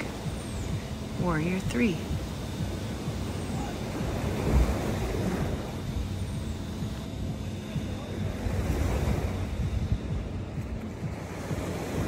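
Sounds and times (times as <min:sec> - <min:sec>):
waves washing up beach: 0:00.0 - 0:12.0
wind on microphone: 0:00.0 - 0:12.0.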